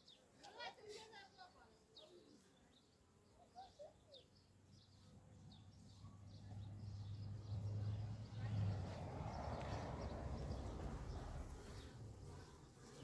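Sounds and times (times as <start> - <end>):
faint bird chirps: 1.4 - 7.6.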